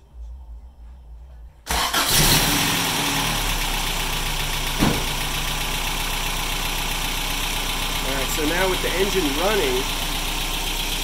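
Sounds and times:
engine starting and idling: 0:01.6 - 0:11.0
short thump: 0:04.8 - 0:05.2.

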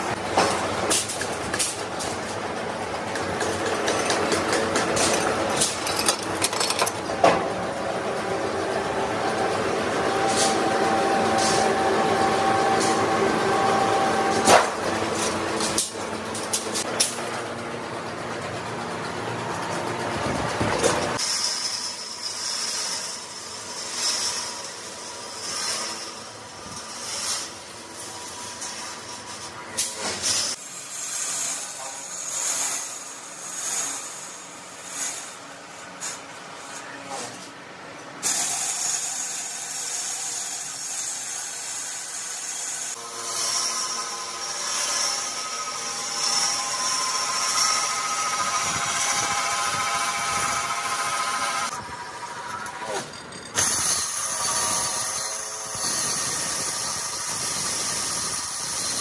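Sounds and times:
metalworking machinery hiss and hum: 0:00.0 - 0:59.0.

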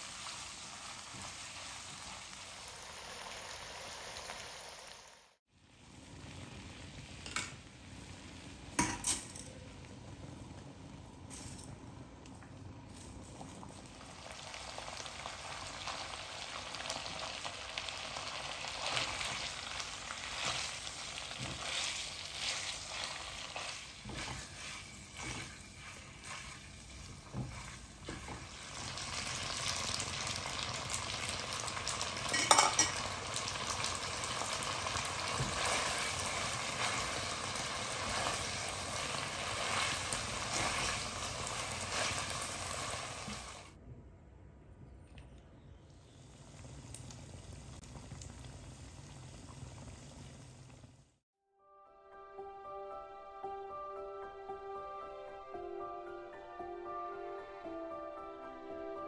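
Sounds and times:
food sizzling in oil: 0:00.0 - 0:09.0, 0:13.7 - 0:43.7.

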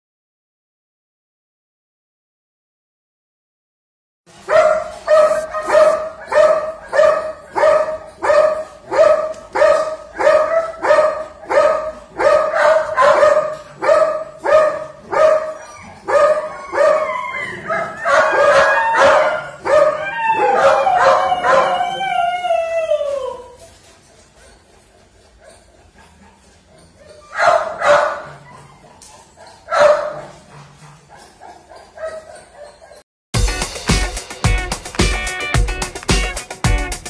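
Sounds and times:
dog barking: 0:04.4 - 0:22.0, 0:24.3 - 0:33.0
dog yelping and howling: 0:04.5 - 0:33.0.

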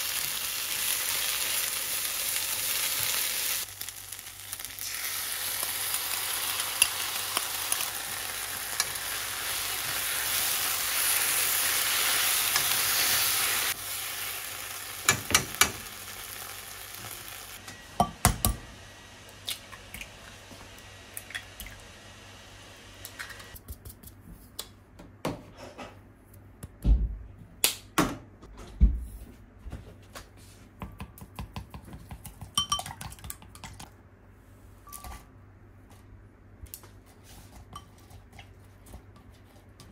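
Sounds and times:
meat sizzling in a frying pan: 0:00.0 - 0:17.6
eggs cracked and beaten in glass bowl: 0:30.8 - 0:33.9.

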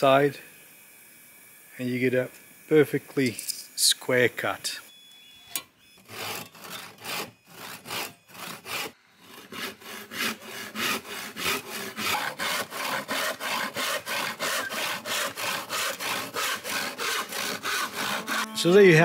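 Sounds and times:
handsaw cutting wood: 0:06.0 - 0:19.0.

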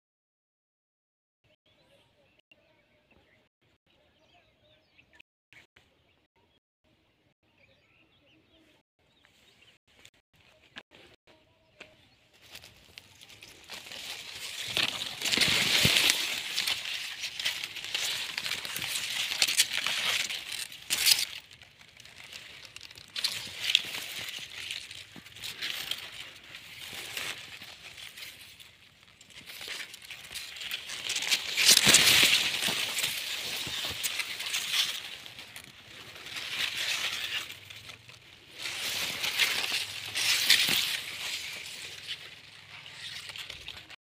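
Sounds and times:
leaves rustling and scraping: 0:11.9 - 0:44.0
light crackles: 0:12.4 - 0:44.0.

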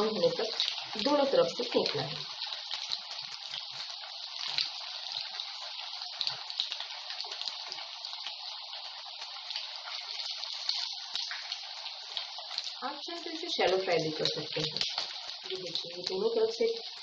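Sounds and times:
cutlets deep-frying in oil: 0:00.0 - 0:17.0
small oil crackles: 0:00.0 - 0:17.0.

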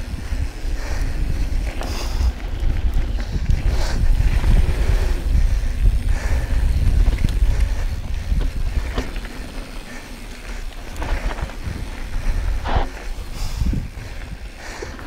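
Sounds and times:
bike rattle and clicks: 0:00.0 - 0:15.0
bike tyre rumble: 0:00.0 - 0:15.0
rider breathing hard: 0:00.0 - 0:15.0
wind buffeting microphone: 0:00.0 - 0:15.0.

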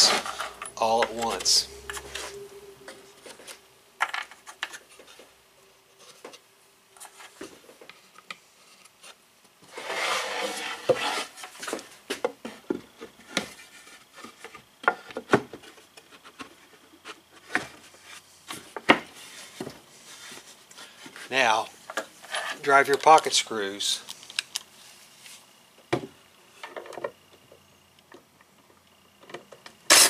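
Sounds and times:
wood scraping rub: 0:00.0 - 0:05.3, 0:07.0 - 0:11.8.

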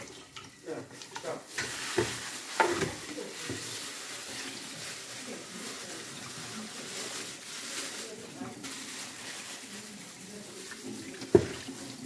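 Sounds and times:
tap running into a sink: 0:11.1 - 0:12.0.

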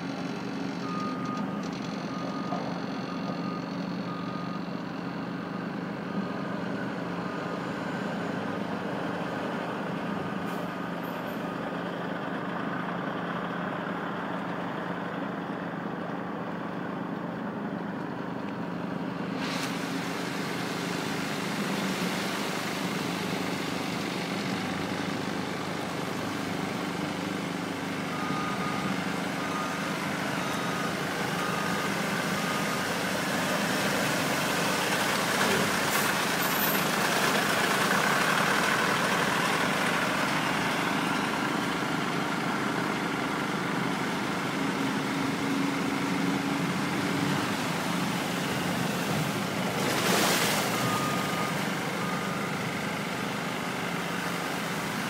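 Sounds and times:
loader engine running under load: 0:00.0 - 0:55.0
reversing alarm beeping: 0:00.8 - 0:08.4, 0:28.0 - 0:34.0, 0:50.6 - 0:52.9.

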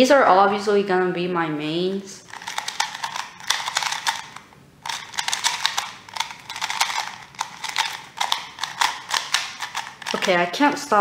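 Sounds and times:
puzzle cube clicking: 0:02.3 - 0:10.5.

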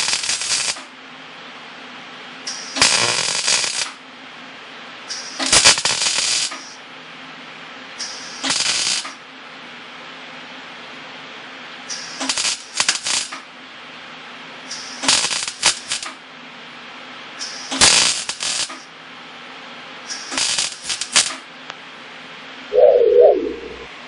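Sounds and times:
welder crackling: 0:02.8 - 0:03.9
low steady hum: 0:22.7 - 0:24.0.

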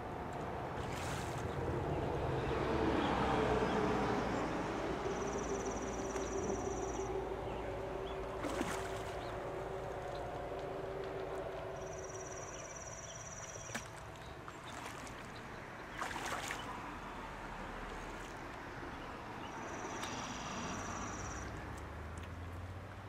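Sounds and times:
fish splashing at water surface: 0:08.3 - 0:10.1, 0:13.4 - 0:18.5.

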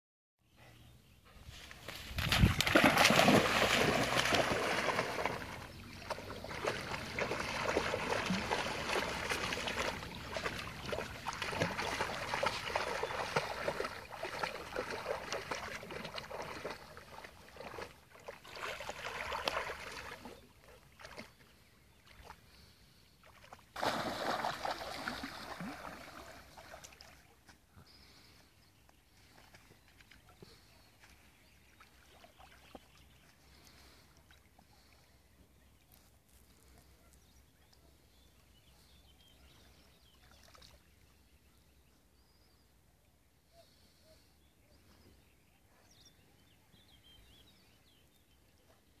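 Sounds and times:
dog splashing through water: 0:01.9 - 0:21.3, 0:23.4 - 0:27.2.

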